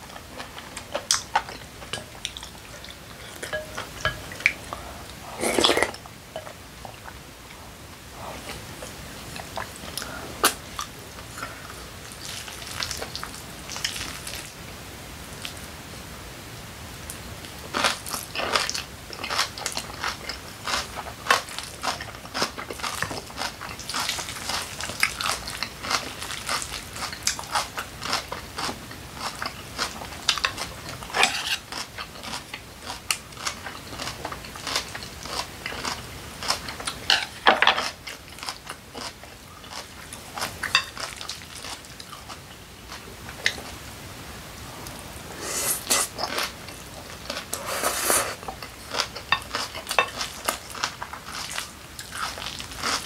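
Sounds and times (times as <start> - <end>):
chewing and crunching: 0.0 - 7.6, 17.4 - 43.8, 45.9 - 53.0.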